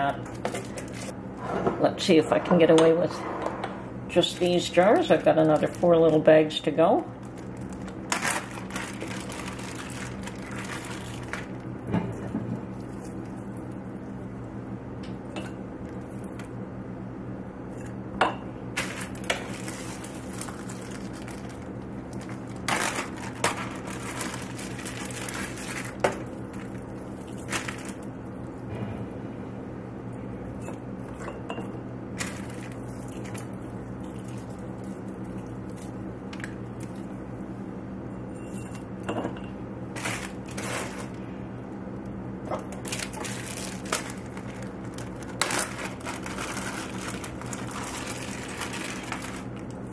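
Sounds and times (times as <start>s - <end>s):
steady low hum: 0.0s - 49.9s
plastic bags crinkling: 4.3s - 6.2s, 7.1s - 11.7s, 18.8s - 28.1s, 32.2s - 35.1s, 39.9s - 41.3s, 42.7s - 49.9s.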